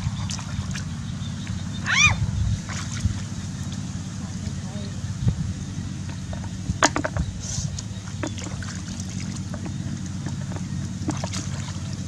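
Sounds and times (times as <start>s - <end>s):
steady low rumble: 0.0s - 12.0s
hands splashing in muddy water: 8.2s - 12.0s.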